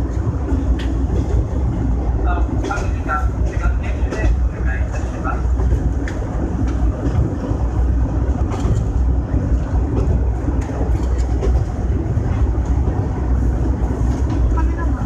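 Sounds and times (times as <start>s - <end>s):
railcar engine rumble: 0.0s - 15.0s
wheels clicking over rail joints: 8.2s - 13.1s.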